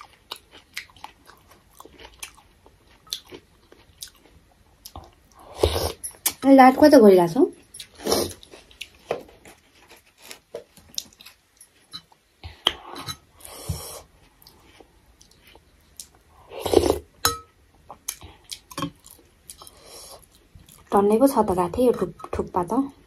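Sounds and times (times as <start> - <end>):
chewing: 0.0 - 6.4, 7.6 - 16.2.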